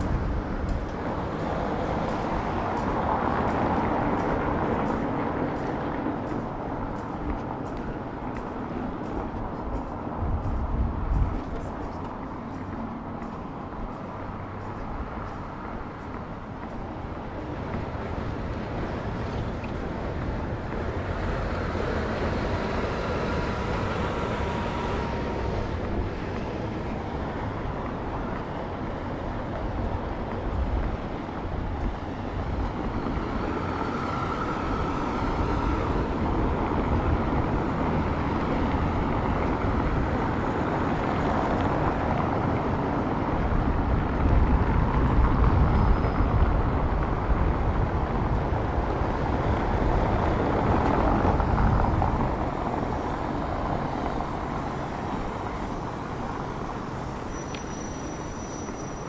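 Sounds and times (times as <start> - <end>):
vehicles driving past: 0.0 - 59.0.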